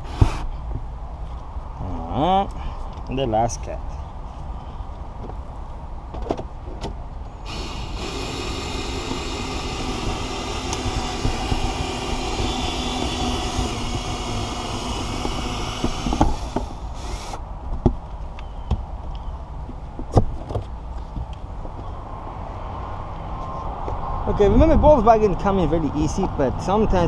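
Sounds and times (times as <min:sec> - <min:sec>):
cordless cutting tool running: 0:07.5 - 0:17.4.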